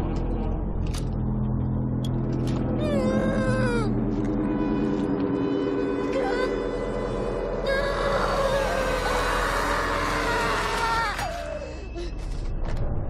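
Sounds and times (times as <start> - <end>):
low held drone: 0.0 - 13.0
woman crying and moaning: 2.8 - 4.0.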